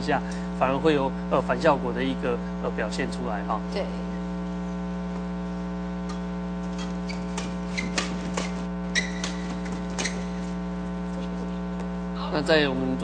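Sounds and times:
steady electrical hum: 0.0s - 13.0s
rackets hitting shuttlecock: 6.1s - 10.4s.

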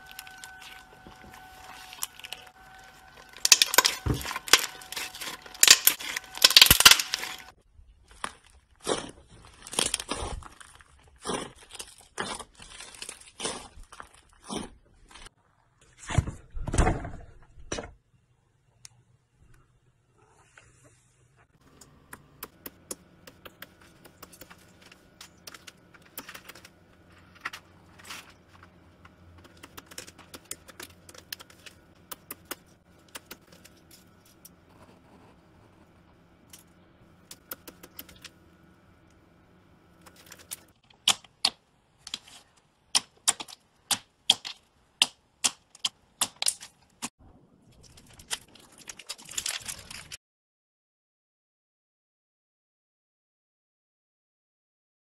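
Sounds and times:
crackling: 0.0s - 15.3s, 39.8s - 50.2s.

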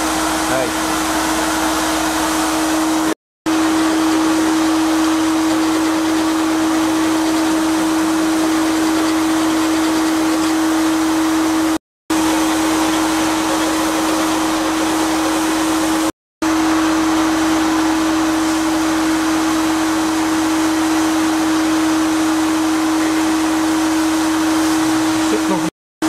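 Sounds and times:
sandblasting hiss: 12.2s - 16.1s.

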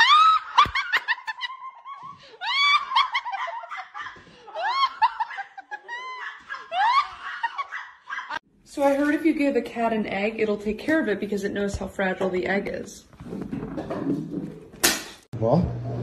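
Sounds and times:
person laughing in shrieks: 1.8s - 8.4s.

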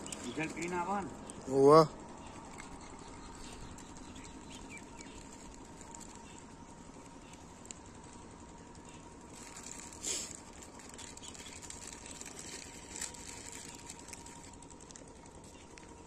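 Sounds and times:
faint outdoor background noise: 0.0s - 16.0s
short hissy sounds: 9.9s - 10.5s.

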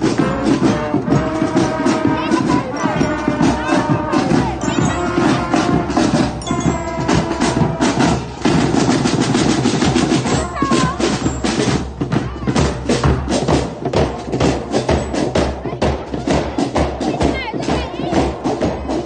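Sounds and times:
brass playing: 0.0s - 11.7s
snare and bass drums: 0.0s - 19.0s.

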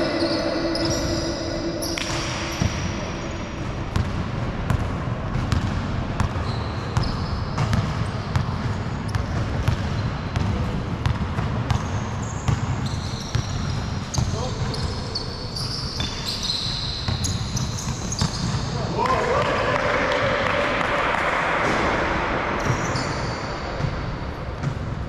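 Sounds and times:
basketball bouncing: 0.7s - 3.0s, 3.7s - 14.9s.

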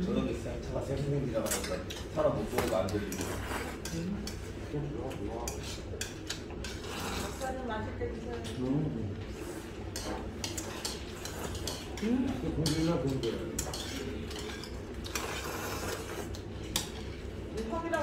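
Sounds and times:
chopsticks clicking against dishes: 1.4s - 4.5s, 5.1s - 6.8s, 9.9s - 15.3s
slurping noodles and broth: 15.0s - 16.4s.

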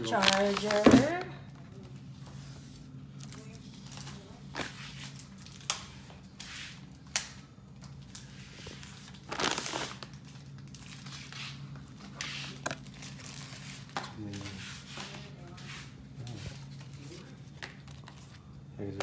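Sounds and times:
plastic and cardboard crinkling: 0.0s - 1.3s.

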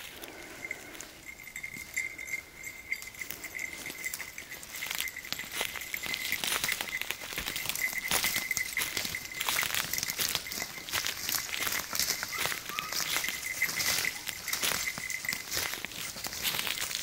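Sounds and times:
footsteps crunching on forest floor: 0.0s - 17.0s.

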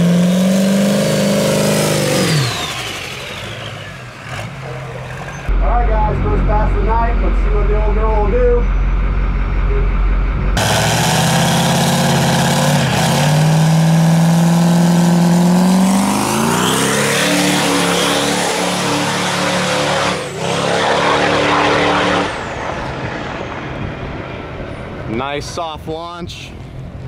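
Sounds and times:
diesel truck engine revving: 0.0s - 23.9s
high turbo whistle: 16.5s - 24.0s.

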